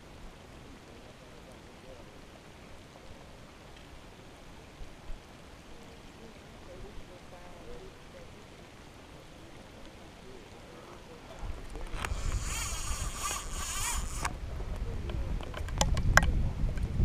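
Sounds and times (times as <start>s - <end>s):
wind rumbling on microphone: 9.4s - 17.0s
harsh hissing whirr: 12.0s - 14.3s.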